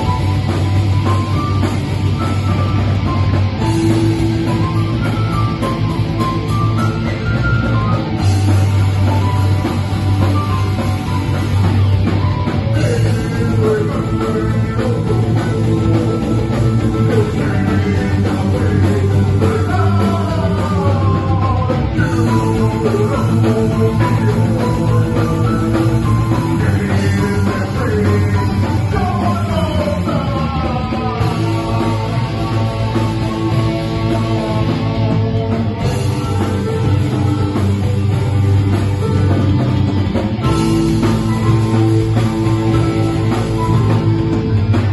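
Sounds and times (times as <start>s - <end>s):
rock band playing: 0.0s - 44.9s
person singing: 12.6s - 34.9s.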